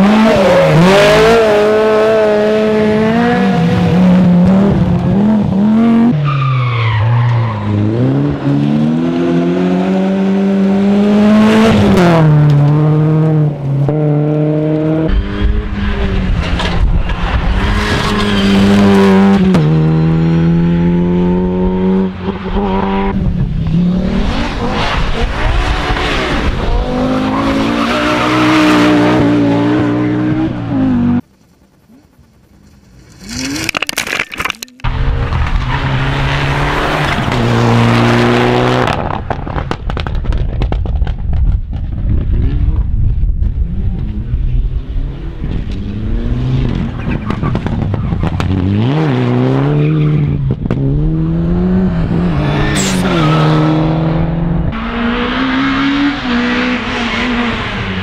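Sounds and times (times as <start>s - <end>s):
rally car engines revving hard: 0.0s - 6.3s, 6.9s - 31.2s, 34.9s - 40.8s, 42.1s - 58.0s.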